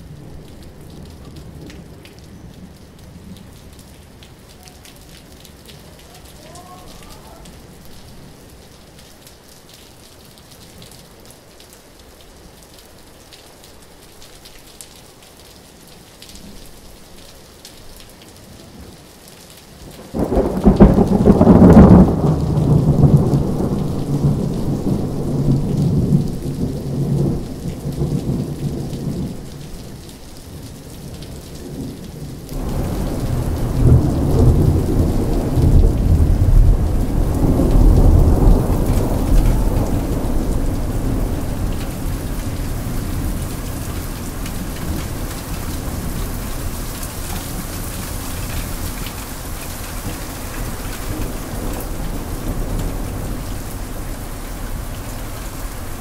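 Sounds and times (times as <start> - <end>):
steady rain: 0.0 - 56.0
thunder rumbling: 19.9 - 56.0.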